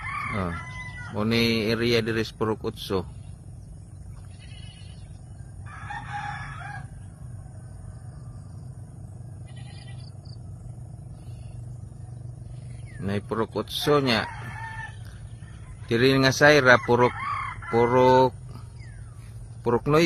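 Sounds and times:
rooster crowing: 0:00.0 - 0:01.6, 0:05.3 - 0:08.7, 0:13.6 - 0:18.9
steady low rumble: 0:00.6 - 0:20.0.

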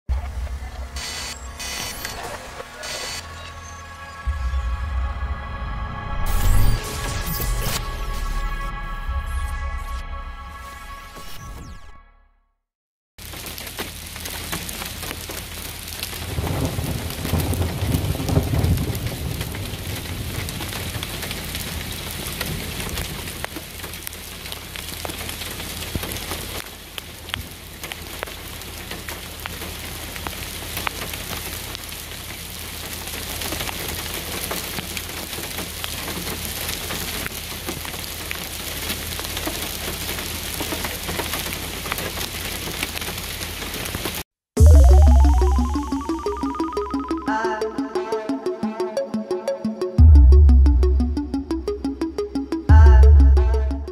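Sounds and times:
rain: 0:00.1 - 0:09.3, 0:13.2 - 0:49.2
low rumble: 0:03.3 - 0:11.3
hail pattering: 0:13.2 - 0:44.2.

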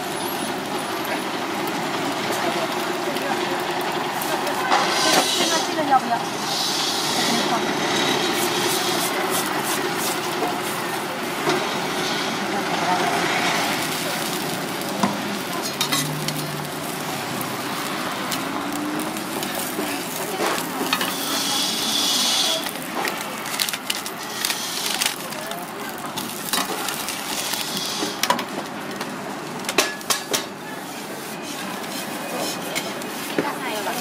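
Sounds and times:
flatbread sizzling on a griddle: 0:00.0 - 0:34.0
metal spatula scraping griddle: 0:04.6 - 0:12.4, 0:13.0 - 0:25.2, 0:31.0 - 0:34.0.

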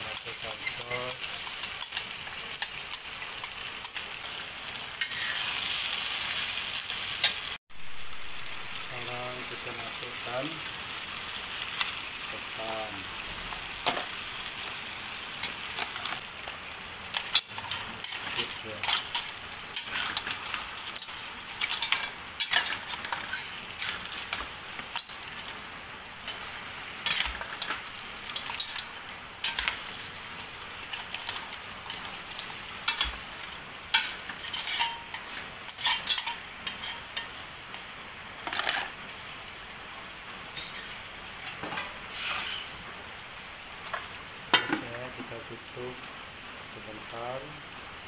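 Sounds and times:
metal spatula scraping a wok: 0:00.0 - 0:05.6, 0:17.1 - 0:25.4, 0:26.2 - 0:37.3, 0:40.6 - 0:42.8
crab sizzling in a wok: 0:00.0 - 0:48.0.

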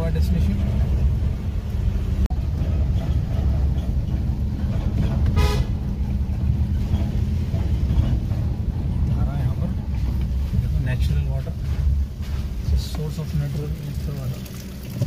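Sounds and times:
diesel engine and road noise: 0:00.0 - 0:15.0
short horn toot: 0:05.3 - 0:05.8.

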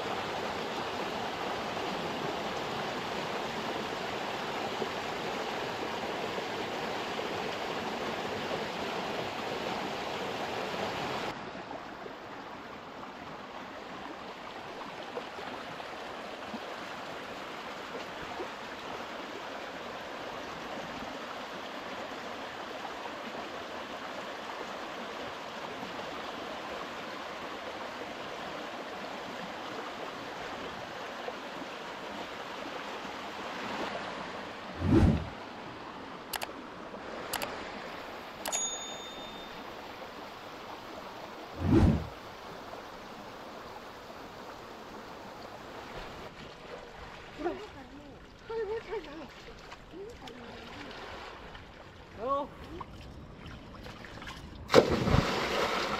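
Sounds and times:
river rushing over stones: 0:00.0 - 0:47.5, 0:54.7 - 0:55.9.

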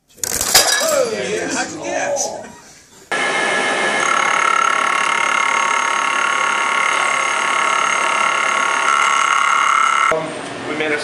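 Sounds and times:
milling machine cutting metal: 0:03.1 - 0:10.1.

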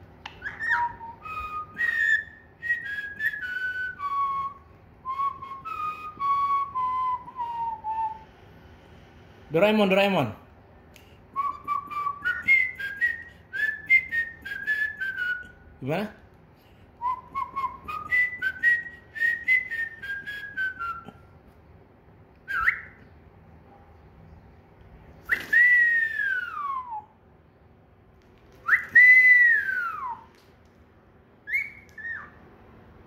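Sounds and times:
cockatiel whistling: 0:00.2 - 0:08.2, 0:11.4 - 0:15.5, 0:22.4 - 0:23.1, 0:28.6 - 0:30.3, 0:31.4 - 0:32.4.

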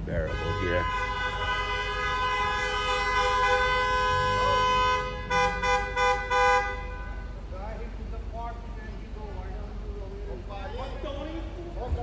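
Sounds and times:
car horns honking: 0:00.0 - 0:07.8.

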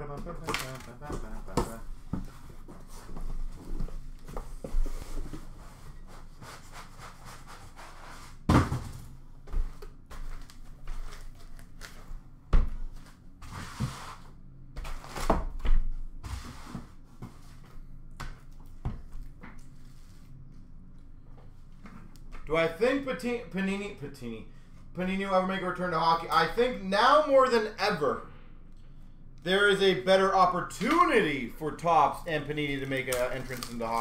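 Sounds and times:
cardboard and foam rustling: 0:32.6 - 0:34.0.

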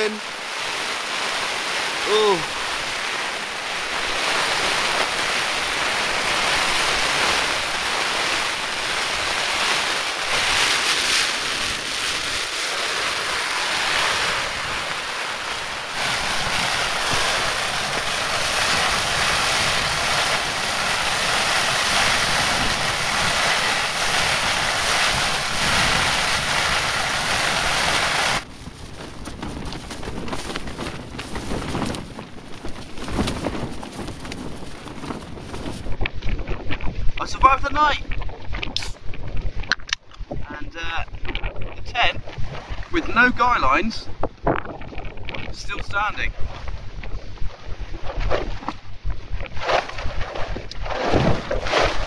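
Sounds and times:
rain beating on tent fabric: 0:00.0 - 0:37.2
wind buffeting microphone: 0:00.0 - 0:52.0.

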